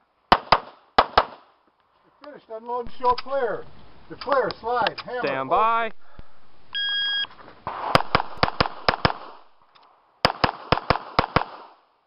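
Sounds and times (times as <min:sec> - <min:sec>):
pistol shots: 0:00.3 - 0:01.4, 0:07.7 - 0:09.6, 0:10.2 - 0:11.8
shot timer beep: 0:06.7 - 0:07.3.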